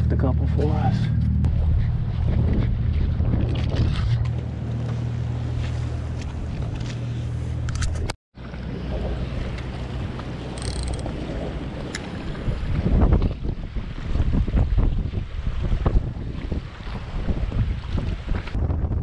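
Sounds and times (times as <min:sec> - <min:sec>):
low engine hum: 0:00.0 - 0:13.8
wind buffeting microphone: 0:08.8 - 0:19.0.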